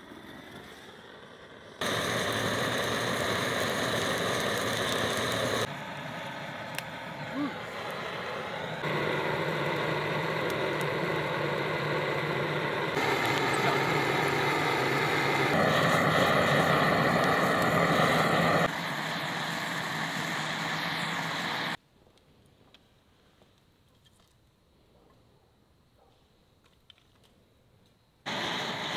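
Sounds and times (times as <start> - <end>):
butane torch hissing: 0.1 - 21.8, 28.3 - 28.9.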